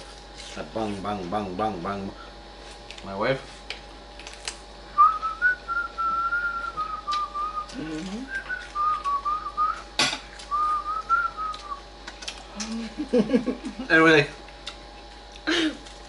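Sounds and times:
person whistling a tune: 5.0s - 9.8s, 10.5s - 11.8s.

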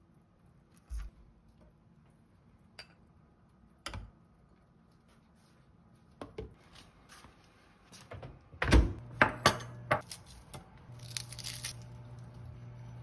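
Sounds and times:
low steady hum: 8.8s - 13.0s
lettuce leaves being torn: 10.0s - 12.5s.

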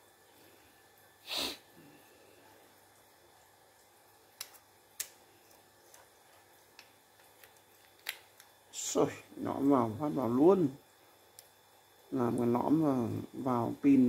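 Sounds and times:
sharp breath through nose: 1.2s - 1.9s.

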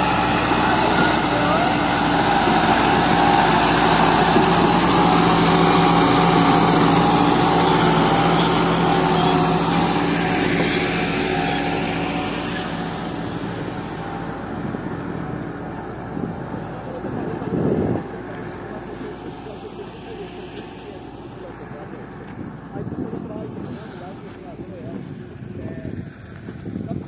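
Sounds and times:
tractor engine running: 0.0s - 27.0s.

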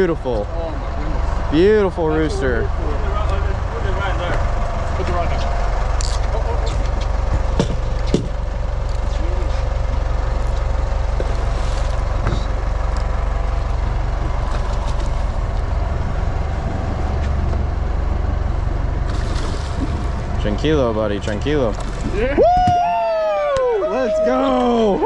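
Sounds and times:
boat engine idling: 0.0s - 25.0s.

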